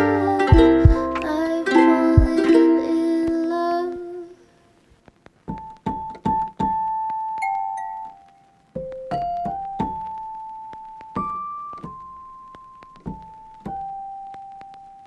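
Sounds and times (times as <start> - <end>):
slow piano melody: 5.9 - 14.6.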